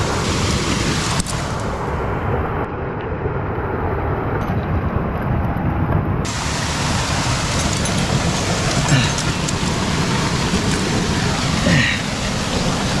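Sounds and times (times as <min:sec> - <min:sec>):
waterfall rushing: 0:00.0 - 0:01.9, 0:06.2 - 0:13.0
water running down rock: 0:06.3 - 0:13.0.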